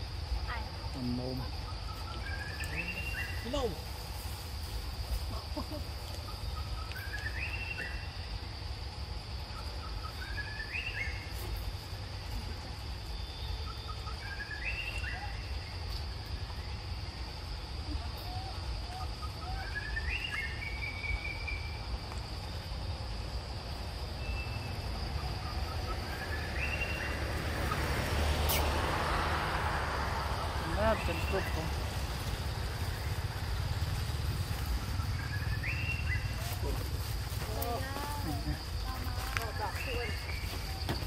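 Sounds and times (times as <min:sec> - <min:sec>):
insect drone: 0:00.0 - 0:41.0
low rumble: 0:24.7 - 0:39.4.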